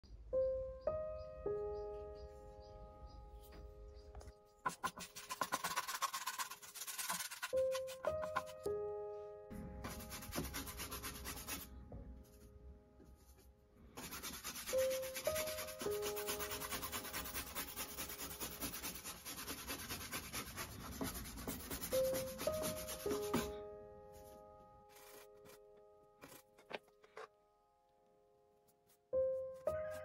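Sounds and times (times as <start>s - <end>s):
paintbrush scrubbing on panel: 4.7s - 8.6s, 9.9s - 11.6s, 14.0s - 23.5s.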